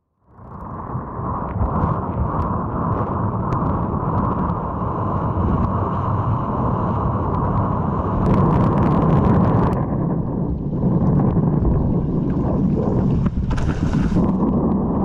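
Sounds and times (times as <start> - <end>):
wind buffeting microphone: 0.3 - 15.0
water rushing and splashing: 11.6 - 14.5.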